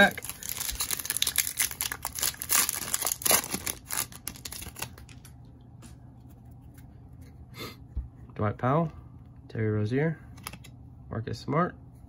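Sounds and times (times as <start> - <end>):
plastic wrapper tearing and crinkling: 0.0 - 5.3.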